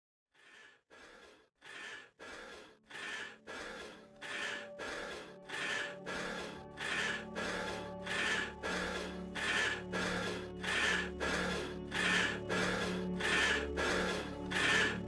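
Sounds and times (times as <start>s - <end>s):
rapid rhythmic breathing: 0.3s - 15.0s
sustained music tones: 2.9s - 15.0s.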